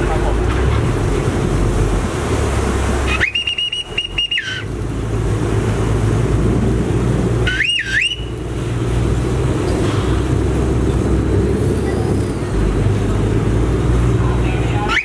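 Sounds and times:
boat engine: 0.0 - 15.0
churning water: 0.0 - 15.0
whistle blasts: 3.1 - 4.7, 7.5 - 8.4.

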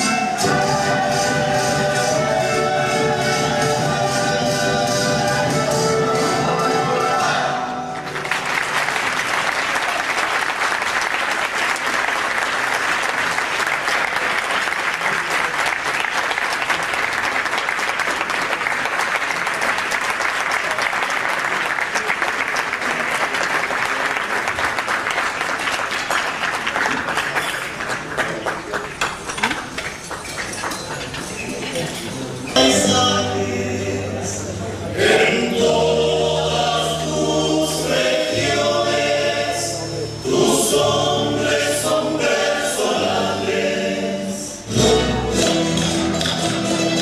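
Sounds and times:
music: 0.0 - 9.2, 32.5 - 47.0
audience applauding: 7.9 - 32.3.

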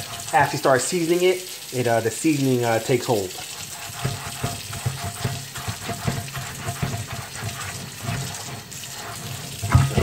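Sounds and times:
scrub pad scrubbing pan: 0.0 - 10.0
tap water running into sink: 0.0 - 10.0.

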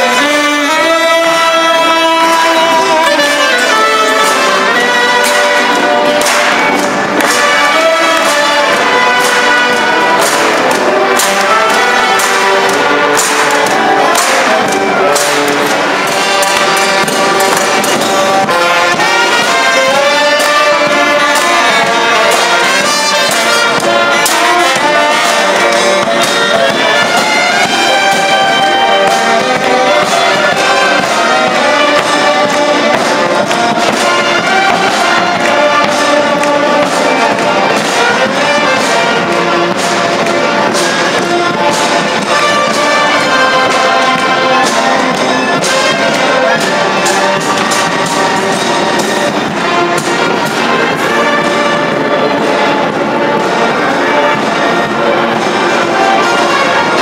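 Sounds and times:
brass band playing: 0.0 - 57.0
drum beats: 0.0 - 57.0.

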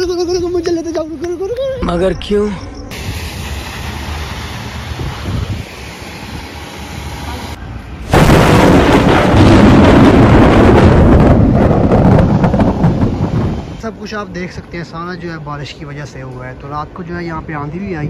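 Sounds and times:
tyres hissing on wet road: 2.9 - 8.3
wind buffeting microphone: 4.8 - 5.8, 8.1 - 13.8.

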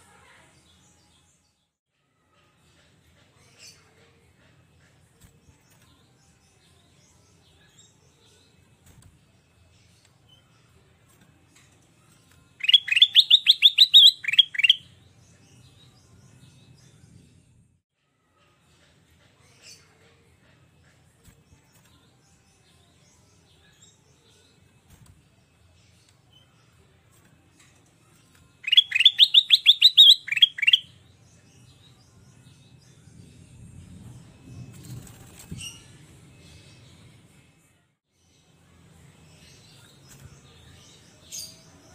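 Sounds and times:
bird singing sharp rising notes: 12.6 - 14.9, 28.6 - 31.0.

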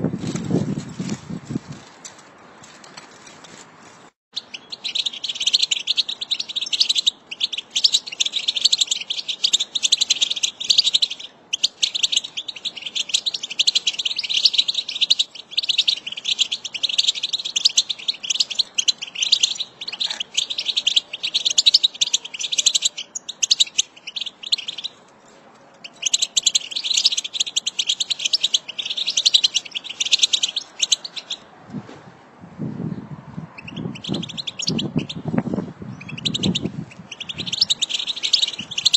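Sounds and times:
goldfinch twittering: 4.4 - 24.9, 25.8 - 31.4, 33.6 - 35.2, 36.0 - 38.9.

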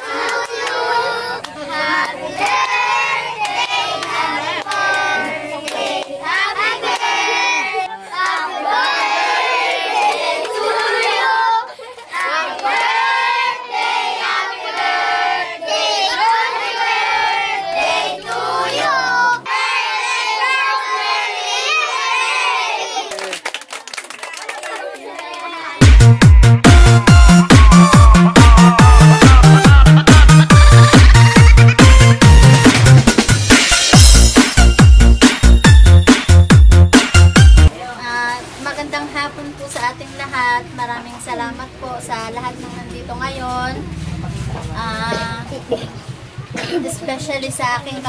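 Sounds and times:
hand clapping: 3.4 - 6.2, 23.1 - 37.5
children singing loudly: 14.2 - 23.1.

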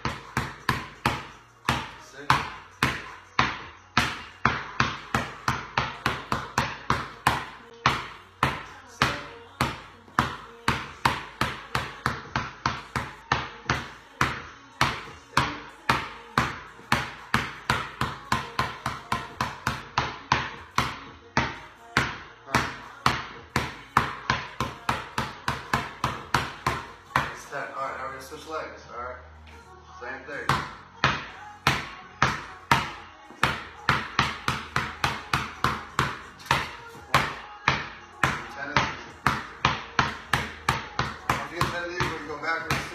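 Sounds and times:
basketball bouncing on concrete: 0.0 - 27.6, 30.3 - 42.9.

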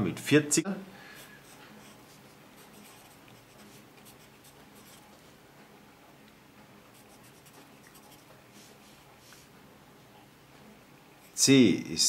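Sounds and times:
pencil scratching on paper: 1.3 - 5.2, 6.9 - 9.0.

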